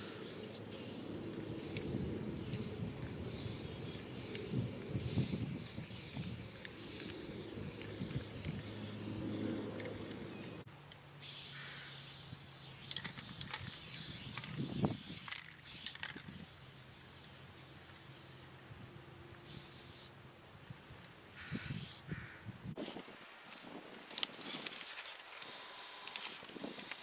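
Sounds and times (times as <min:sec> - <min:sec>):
spray paint cans hissing: 0:00.0 - 0:18.6, 0:19.4 - 0:20.1, 0:21.4 - 0:22.1.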